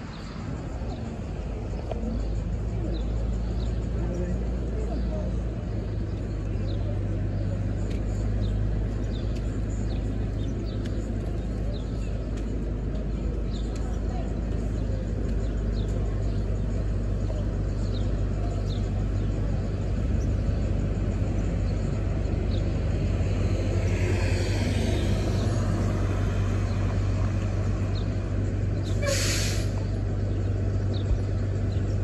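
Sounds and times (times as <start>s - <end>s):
bus engine droning: 0.0s - 32.0s
air brake hiss: 28.9s - 29.8s
air hiss: 28.9s - 29.8s.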